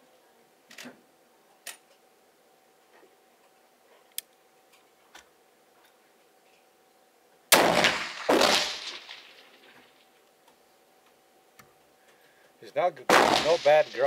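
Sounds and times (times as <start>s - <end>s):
loud rifle shot: 7.5s - 9.8s, 13.1s - 14.0s.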